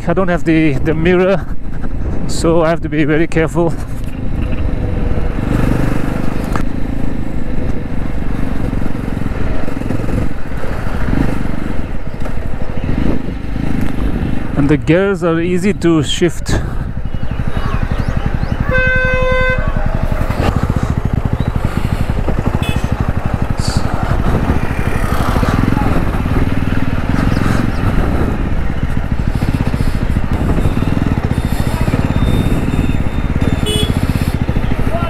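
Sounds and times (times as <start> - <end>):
motorcycle engine running: 0.7 - 35.0
vehicle horn: 18.6 - 20.0, 22.6 - 23.0, 30.5 - 34.4.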